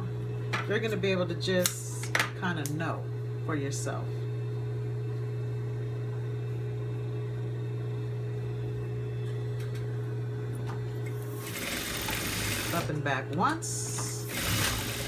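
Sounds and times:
sewing machine motor humming: 11.3 - 13.0, 13.9 - 15.0
sewing machine stitching: 11.4 - 12.9, 14.2 - 15.0.

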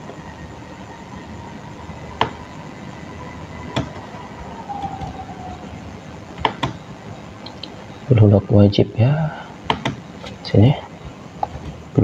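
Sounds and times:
faint steady hiss: 0.0 - 12.0
computer mouse clicks: 9.7 - 10.4.

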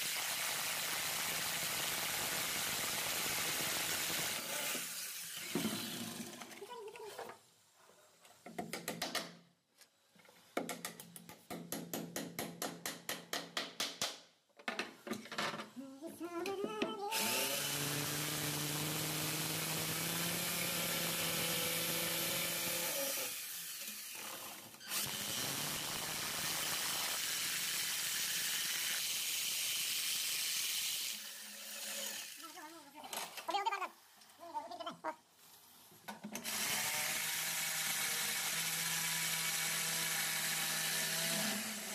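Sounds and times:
electric drill drilling: 0.1 - 6.2, 17.1 - 32.3, 36.4 - 41.9.

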